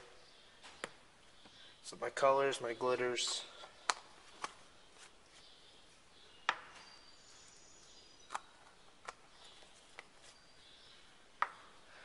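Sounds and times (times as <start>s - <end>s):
plastic caps snapping shut: 3.8s - 4.6s.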